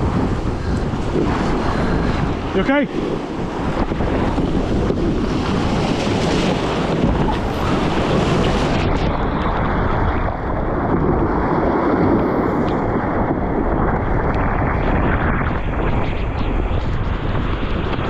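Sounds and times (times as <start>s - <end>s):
water splashing over boat: 0.0s - 14.2s
surf breaking over rocks: 0.0s - 18.0s
wind buffeting microphone: 0.0s - 18.0s.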